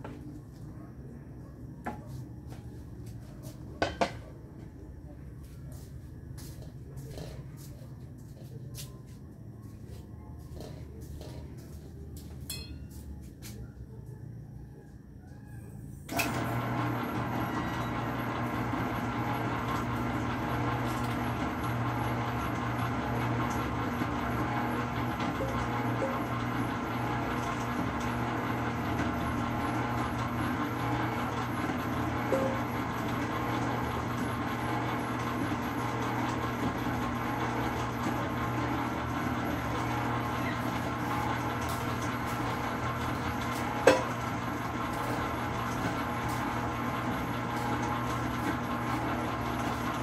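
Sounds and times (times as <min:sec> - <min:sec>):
stand mixer motor humming: 0:16.1 - 0:50.0.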